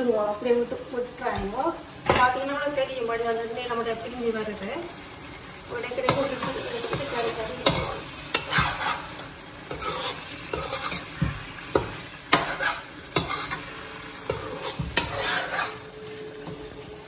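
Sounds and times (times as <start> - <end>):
gravy sizzling: 0.0 - 17.0
metal spatula scraping a wok: 6.1 - 16.3.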